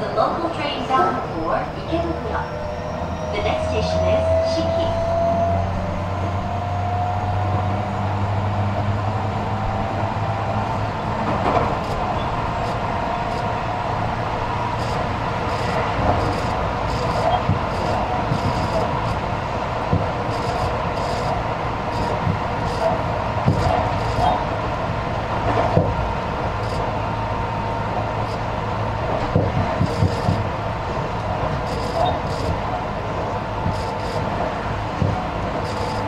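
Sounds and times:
train wheels rumbling on track: 0.0s - 36.0s
inverter whine: 8.9s - 24.6s, 25.9s - 36.0s.

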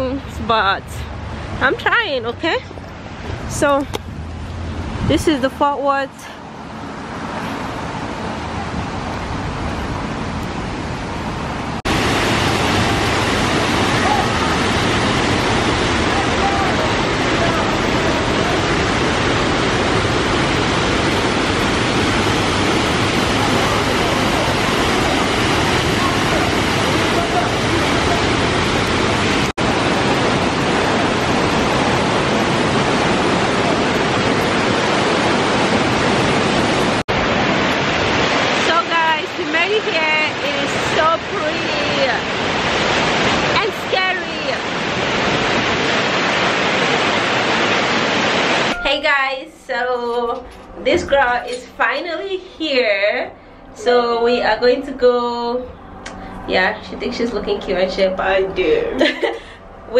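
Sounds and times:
steady outdoor rushing noise: 0.0s - 59.9s
water pouring down fountain cascades: 11.9s - 48.8s.

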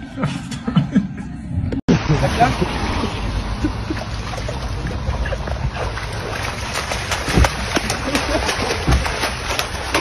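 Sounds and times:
splashing in shallow water: 1.9s - 10.0s
body thump in water: 5.8s - 10.0s.

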